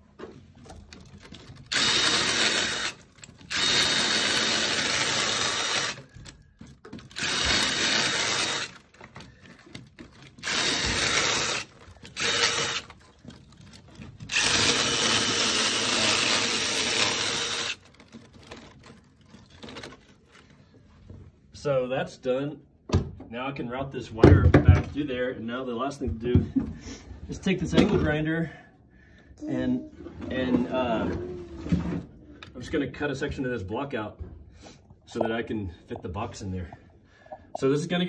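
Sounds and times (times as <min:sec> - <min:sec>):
cordless drill boring into mortar: 0:01.7 - 0:06.1, 0:07.1 - 0:08.9, 0:10.4 - 0:13.0, 0:14.3 - 0:17.9.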